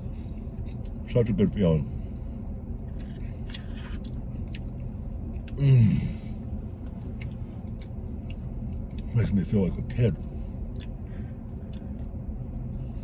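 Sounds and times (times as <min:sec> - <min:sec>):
low car cabin hum: 0:00.0 - 0:13.0
man moaning with enjoyment: 0:05.5 - 0:06.3.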